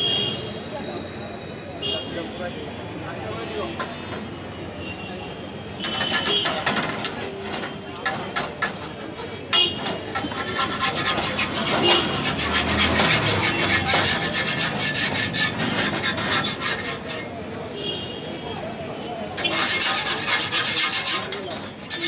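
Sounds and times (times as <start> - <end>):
scraping on cast-iron griddle: 5.8 - 17.4, 19.4 - 22.0.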